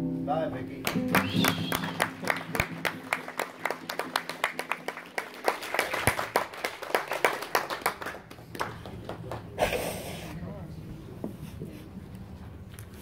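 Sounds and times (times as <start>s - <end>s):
people clapping: 0.8s - 9.7s.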